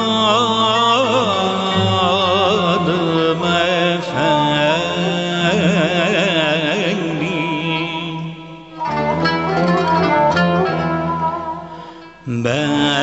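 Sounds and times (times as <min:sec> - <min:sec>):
melodic line with wide vibrato: 0:01.6 - 0:03.6.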